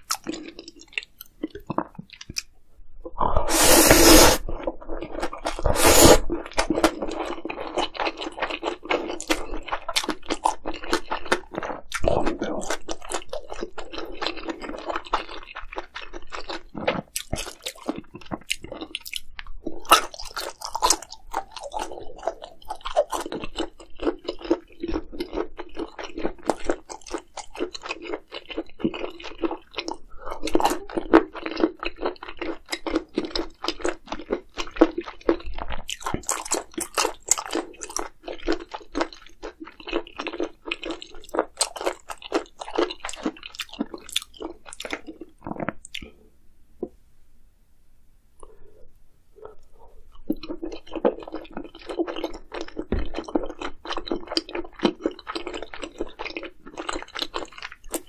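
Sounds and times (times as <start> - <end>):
person chewing food: 0.0 - 47.0, 48.4 - 58.0.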